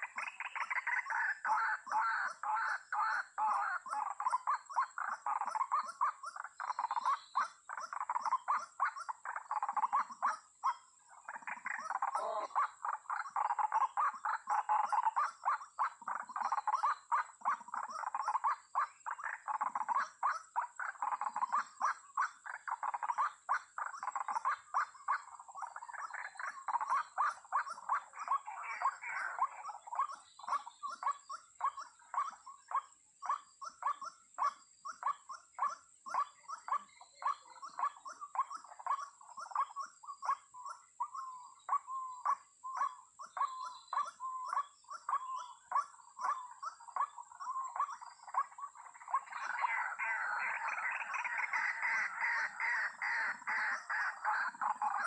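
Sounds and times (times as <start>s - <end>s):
waterhen calling: 0.0s - 55.0s.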